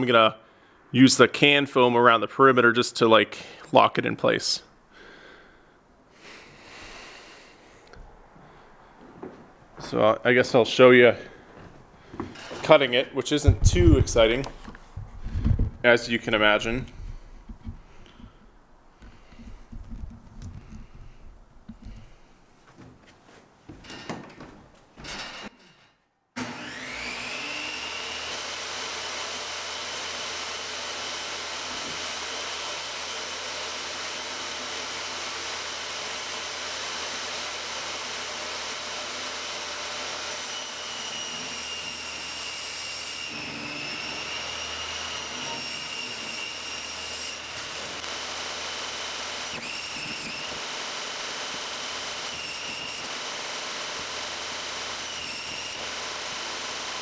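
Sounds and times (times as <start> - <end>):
table saw whine: 12.4 - 18.4, 26.4 - 57.0
saw cutting foam board: 26.4 - 57.0.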